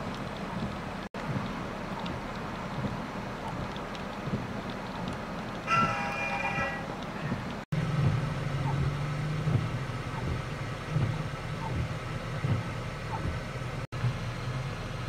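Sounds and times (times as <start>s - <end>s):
vehicle engine idling: 6.9s - 15.0s.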